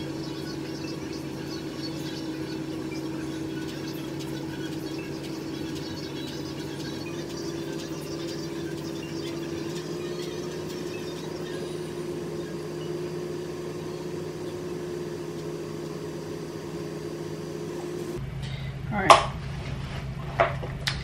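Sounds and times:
fan motor humming: 0.0s - 18.6s.

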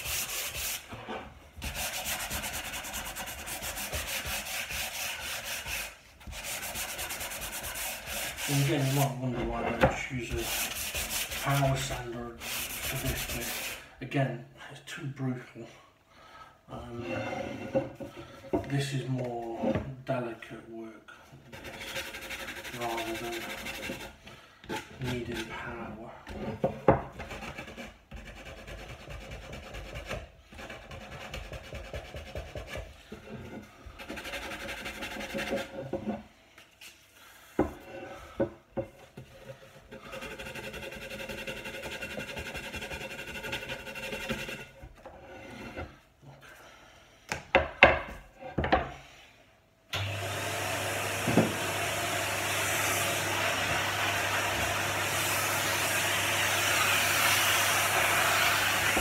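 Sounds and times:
sandpaper rubbing on wood: 0.0s - 1.0s, 1.6s - 9.3s, 10.2s - 13.9s, 21.6s - 24.2s, 34.0s - 35.7s, 40.0s - 44.7s, 52.8s - 59.0s.

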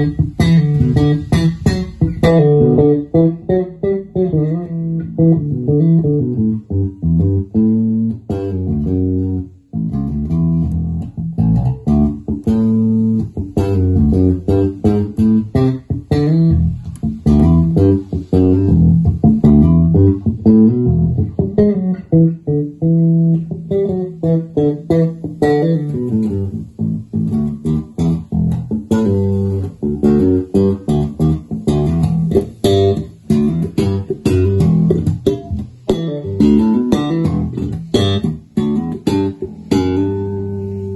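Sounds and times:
electric bass plucked runs: 0.0s - 40.9s.

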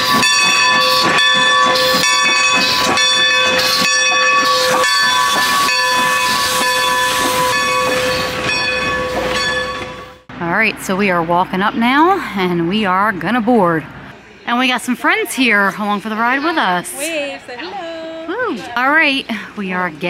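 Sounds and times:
shrill multi-tone train whistle: 0.0s - 8.5s
steam engine puffs: 0.0s - 9.4s
hissing steam: 4.5s - 8.5s.

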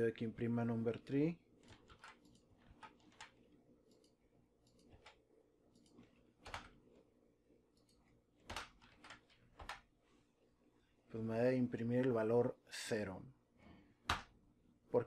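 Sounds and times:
keyboard typing clicks: 1.6s - 6.8s, 7.8s - 9.8s.

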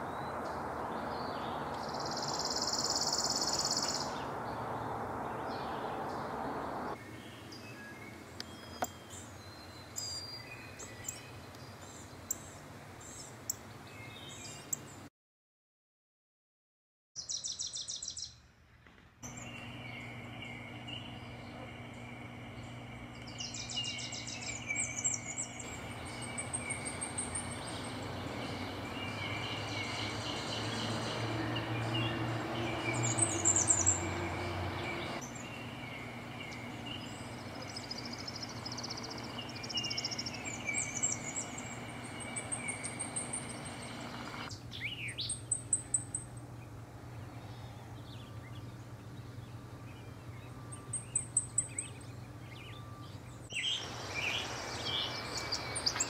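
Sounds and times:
warblers singing high thin notes: 19.3s - 44.5s.

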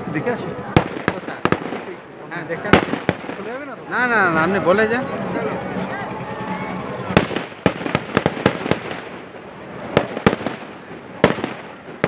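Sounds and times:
fireworks bangs: 0.0s - 3.9s, 7.1s - 12.0s.

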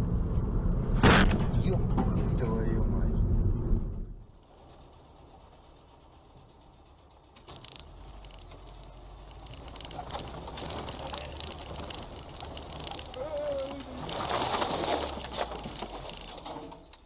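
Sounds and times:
engine hum: 0.0s - 17.0s
road noise: 0.0s - 17.0s
rattles and knocks: 4.4s - 17.0s.

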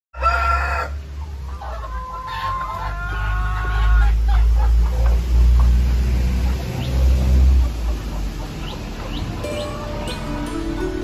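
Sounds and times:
rooster crowing: 0.2s - 1.0s
chicken clucking: 0.2s - 11.0s.

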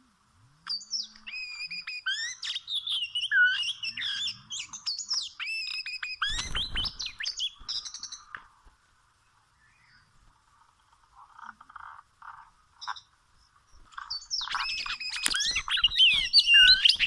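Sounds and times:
bird singing whistled phrases: 0.7s - 8.2s, 14.1s - 17.0s.

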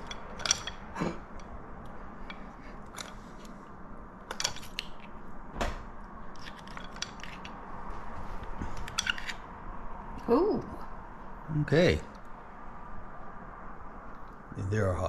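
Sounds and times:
fork clicking on mussel shells: 6.4s - 7.6s.

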